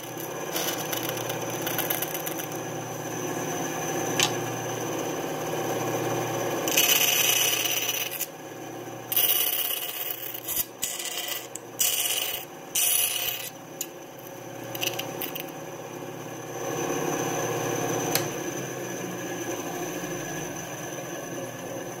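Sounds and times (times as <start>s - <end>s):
bandsaw running: 0.0s - 5.1s, 6.5s - 8.3s, 9.1s - 13.6s.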